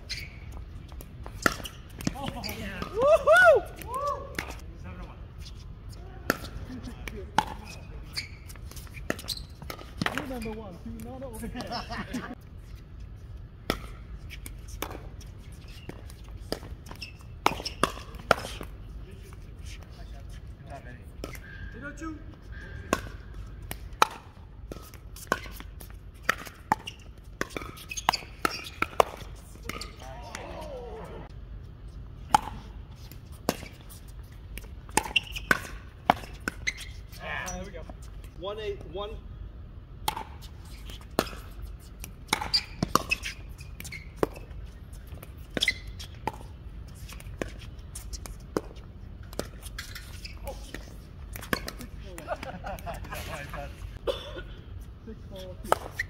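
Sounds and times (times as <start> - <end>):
paddles striking pickleball: 32.3 - 32.7, 34.5 - 36.8.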